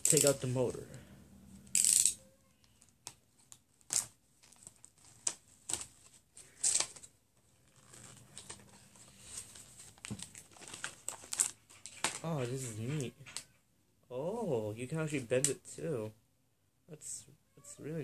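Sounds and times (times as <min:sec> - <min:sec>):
plastic bag crinkling: 0:02.8 - 0:12.6.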